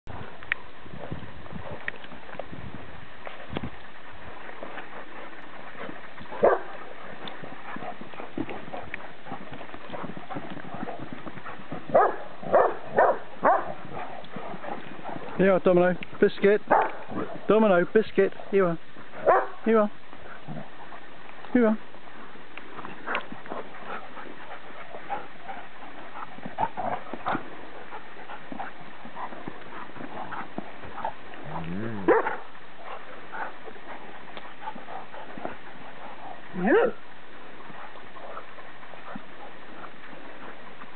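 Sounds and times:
dogs playing: 0:00.1 - 0:40.9
dog barking: 0:06.4 - 0:06.7, 0:11.9 - 0:14.0, 0:16.7 - 0:17.4, 0:19.2 - 0:19.6, 0:32.0 - 0:32.4
dogs making short vocal sounds: 0:28.3 - 0:33.5.

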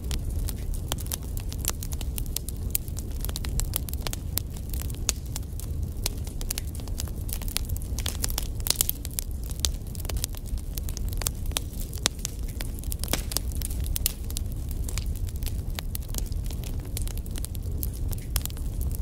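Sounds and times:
fire crackling and popping: 0:00.0 - 0:19.0
fire low rumble: 0:00.0 - 0:19.0.

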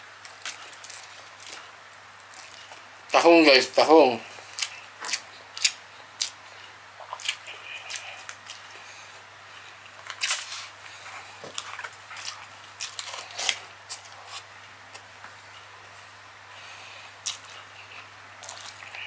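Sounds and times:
wet mouth smacks and chewing: 0:04.6 - 0:06.4, 0:07.0 - 0:08.7, 0:17.2 - 0:17.7.

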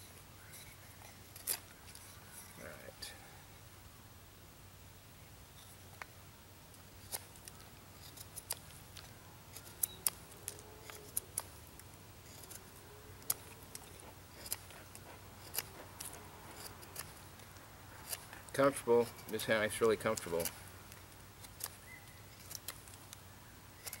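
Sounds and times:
knife whittling wood: 0:07.0 - 0:11.6, 0:12.2 - 0:20.6, 0:21.4 - 0:23.2, 0:23.8 - 0:24.0.

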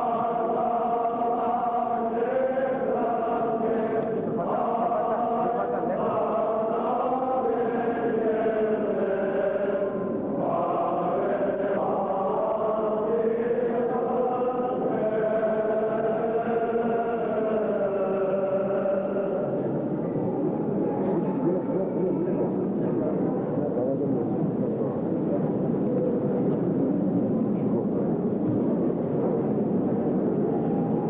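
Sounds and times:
choir chanting: 0:00.0 - 0:22.4.

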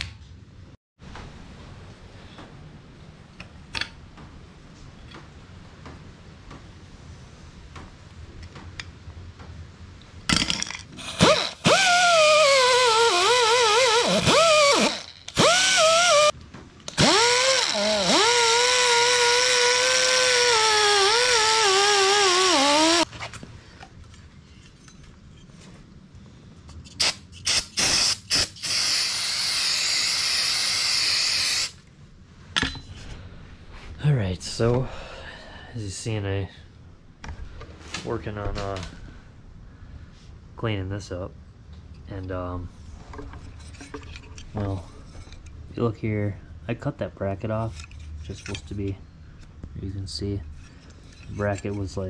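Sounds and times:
rotary tool sanding metal: 0:11.0 - 0:23.1, 0:27.0 - 0:31.8.

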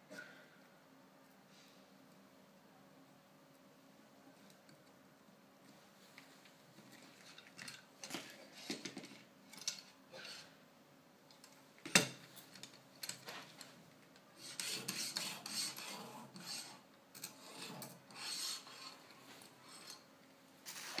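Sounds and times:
sharpening stone scraping blade: 0:14.4 - 0:19.0.

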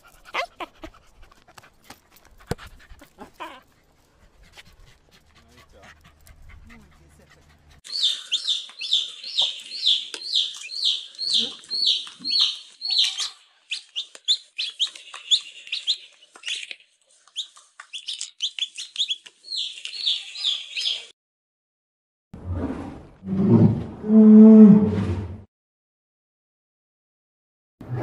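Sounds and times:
chick peeping: 0:07.9 - 0:21.1.

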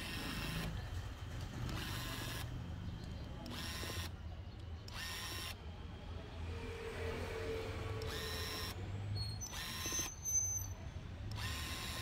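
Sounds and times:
small motorised tool running: 0:01.6 - 0:02.5, 0:03.4 - 0:04.1, 0:04.9 - 0:05.6, 0:08.0 - 0:08.8, 0:09.4 - 0:10.2, 0:11.3 - 0:12.0.

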